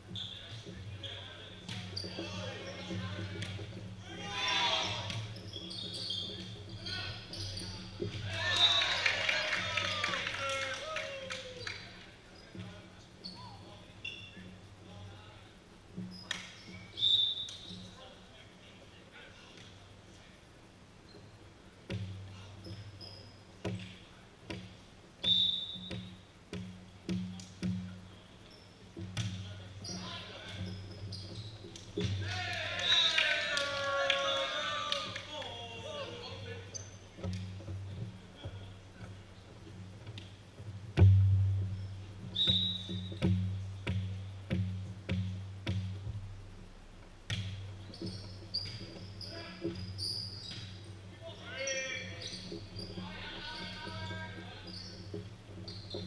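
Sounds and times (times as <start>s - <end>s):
shoe squeak on floor: 0.1s - 3.1s, 4.7s - 8.8s, 13.2s - 14.5s, 16.0s - 18.0s, 22.5s - 23.9s, 25.2s - 26.2s, 29.8s - 32.1s, 36.5s - 37.2s, 41.8s - 43.4s, 47.8s - 56.0s
ball bouncing on wooden floor: 21.9s - 28.0s, 37.2s - 46.4s, 47.0s - 51.0s.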